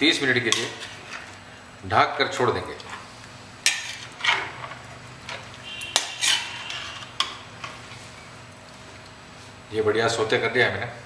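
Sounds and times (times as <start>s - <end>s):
metal spatula scraping a metal pan: 3.6s - 8.0s.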